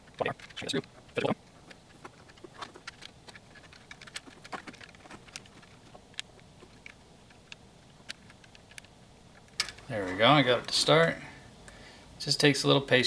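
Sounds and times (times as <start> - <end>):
plastic parts clicking: 0.1 - 9.9.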